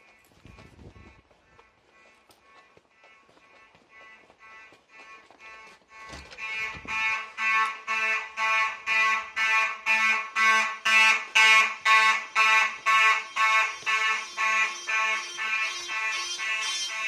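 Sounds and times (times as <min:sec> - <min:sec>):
pulsing fire alarm horn: 0:03.5 - 0:17.0.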